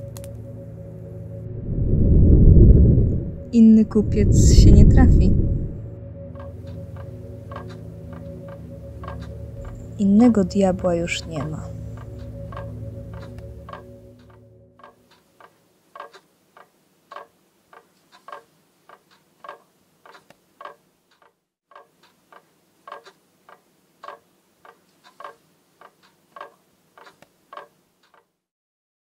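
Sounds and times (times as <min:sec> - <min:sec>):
clock ticking: 0:06.4 - 0:28.3.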